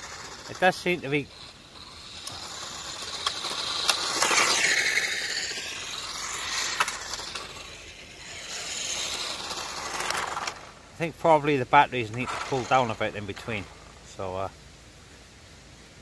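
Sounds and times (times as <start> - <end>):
sharp ticks: 0.0 - 10.7
rc car motor whine: 0.0 - 14.2.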